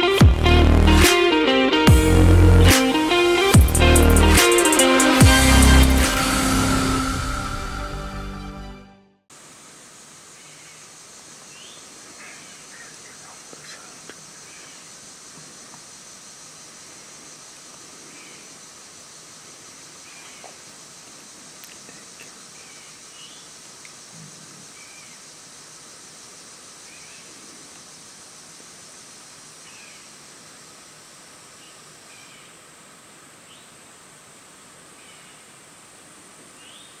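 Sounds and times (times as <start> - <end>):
crickets and insects chirring: 9.3 - 37.0.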